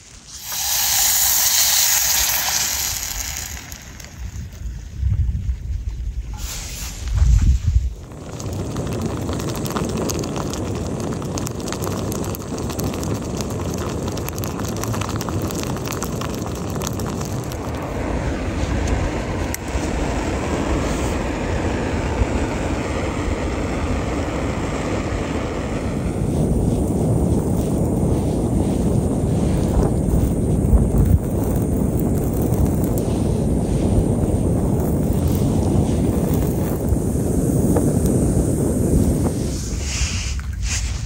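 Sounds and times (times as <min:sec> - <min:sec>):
wind rumbling on microphone: 0:00.0 - 0:41.0
food sizzling in a frying pan: 0:00.3 - 0:04.4.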